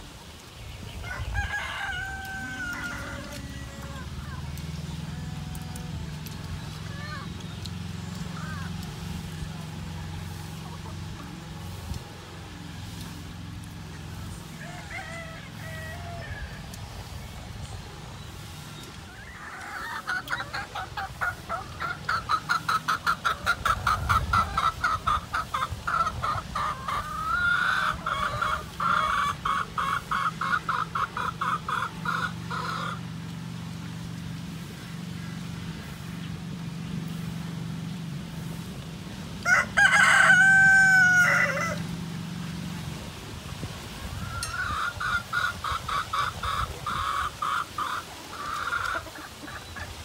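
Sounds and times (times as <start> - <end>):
chickens clucking: 0.0 - 50.0
rooster crowing: 1.0 - 4.4, 14.5 - 16.7, 39.4 - 41.9.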